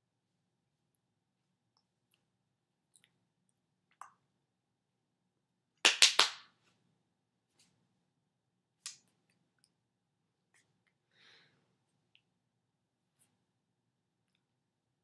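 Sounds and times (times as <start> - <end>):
hands slapping together: 5.8 - 6.5.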